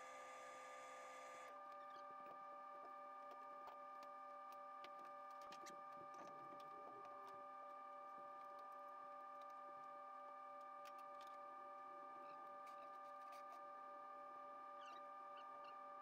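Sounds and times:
faint scattered ticks: 0.0s - 9.6s, 10.6s - 11.4s, 12.2s - 13.8s.

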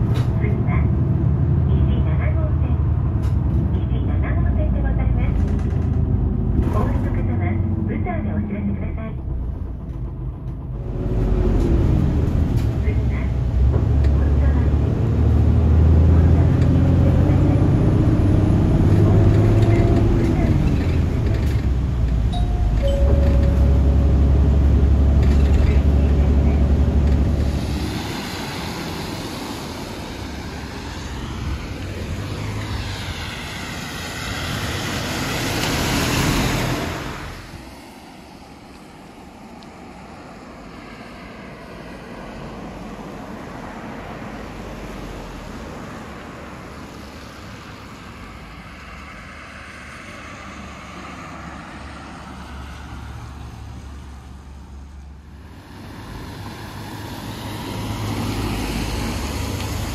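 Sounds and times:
heavy engine humming: 0.0s - 35.7s
steady road noise: 0.0s - 59.9s
tyres hissing on wet road: 27.3s - 53.6s, 55.3s - 59.9s.

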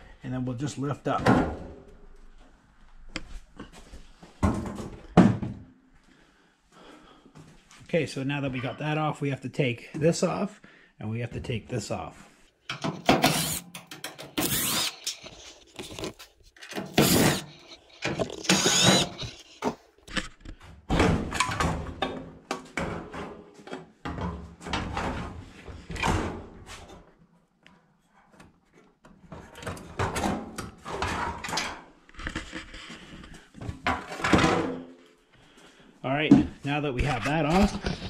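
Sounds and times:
cordless drill whirring: 12.7s - 19.8s.

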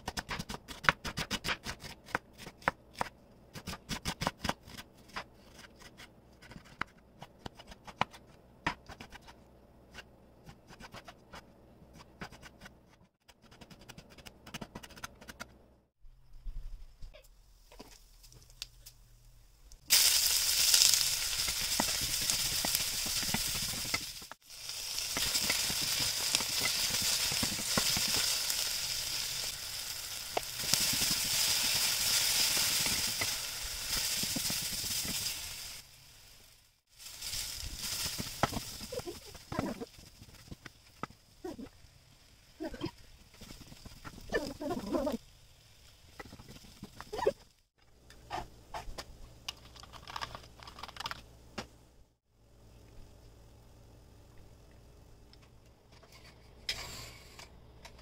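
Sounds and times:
hot oil sizzling in pan: 19.8s - 42.6s.

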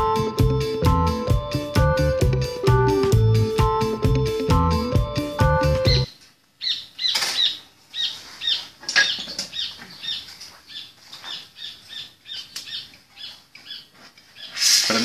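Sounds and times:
small bird chirping: 5.8s - 14.6s.

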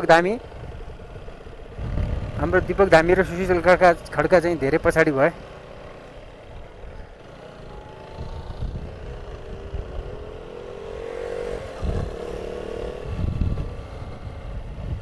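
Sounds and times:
motorcycle engine running: 0.0s - 15.0s
wind rumble on microphone: 0.5s - 3.8s, 8.1s - 10.4s, 11.4s - 15.0s.

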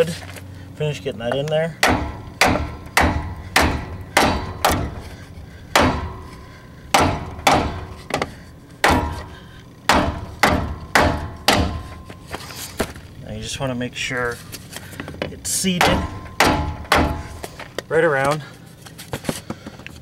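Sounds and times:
hammer striking wooden block: 1.8s - 5.1s, 5.7s - 6.3s, 6.9s - 9.3s, 9.9s - 12.2s, 15.8s - 17.4s.

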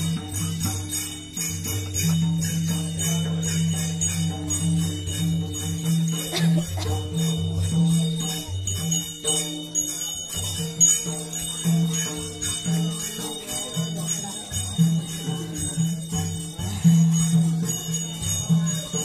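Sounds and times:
bells jingling: 0.0s - 19.0s.

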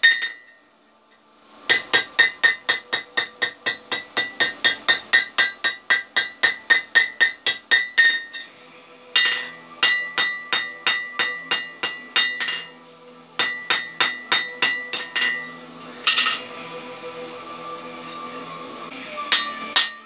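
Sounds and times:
hammer striking steel on anvil: 0.0s - 0.6s, 1.7s - 12.8s, 13.4s - 16.6s, 19.2s - 20.0s.

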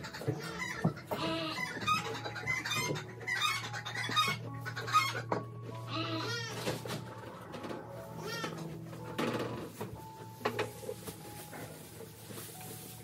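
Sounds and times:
chickens clucking: 0.0s - 9.0s.

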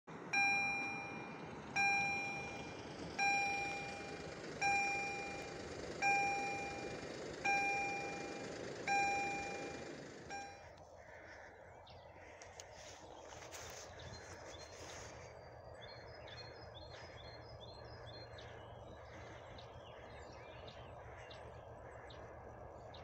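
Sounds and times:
level crossing bell ringing: 0.3s - 10.6s.

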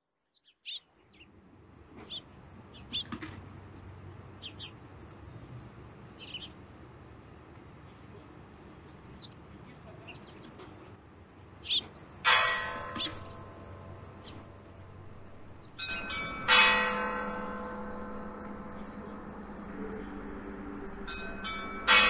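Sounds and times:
birds chirping: 0.3s - 6.9s, 7.8s - 22.0s
church bells ringing: 12.2s - 22.0s.

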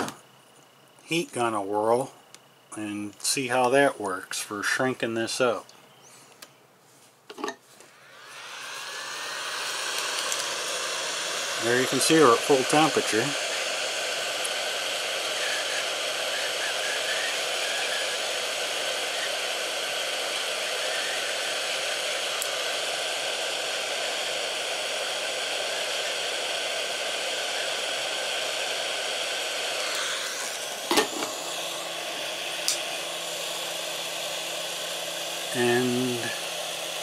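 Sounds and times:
hot-air gun blowing: 7.9s - 37.0s.

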